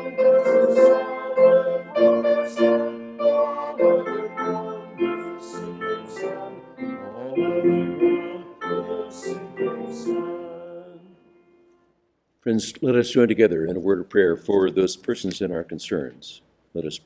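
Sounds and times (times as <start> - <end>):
voices singing along: 0.0 - 11.4
hymn on keyboard: 0.0 - 11.6.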